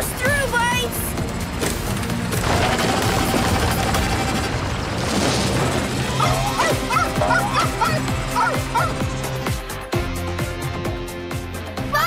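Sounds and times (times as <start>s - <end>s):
cartoon background music: 0.0s - 4.6s, 5.9s - 12.0s
robot dog yipping: 6.2s - 9.1s.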